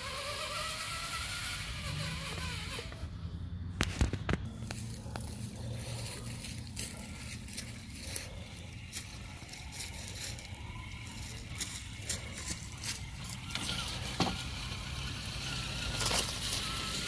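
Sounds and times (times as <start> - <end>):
electric motor whine: 0.0 - 3.7, 7.3 - 17.0
steady low hum: 0.0 - 17.0
tires crunching on stones: 0.0 - 17.0.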